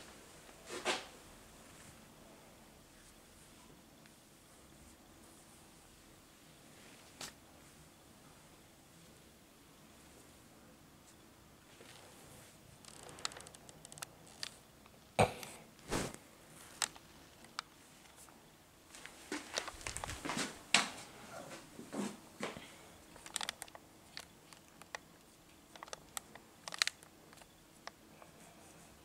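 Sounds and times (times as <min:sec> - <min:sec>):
device handling clicks and rustling: 0:12.8 - 0:14.6, 0:16.7 - 0:18.2, 0:19.0 - 0:20.4, 0:23.1 - 0:28.0.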